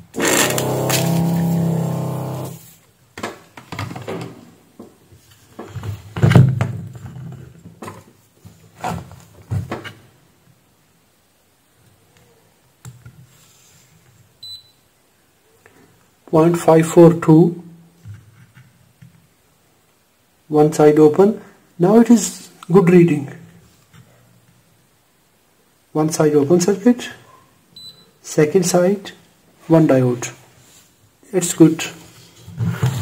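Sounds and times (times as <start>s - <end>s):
steady low hum: 0.0s - 2.7s.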